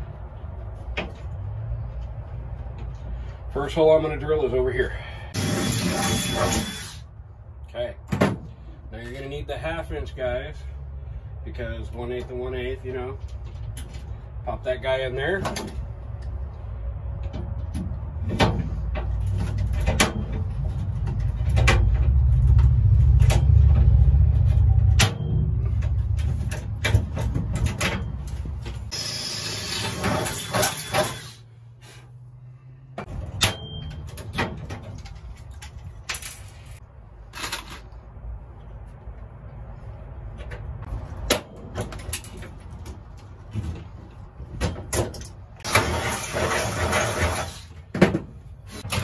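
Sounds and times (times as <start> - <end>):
drill boring through metal: 5.4 - 7.1, 28.9 - 31.4
tools and metal parts clicking: 33.2 - 38.0.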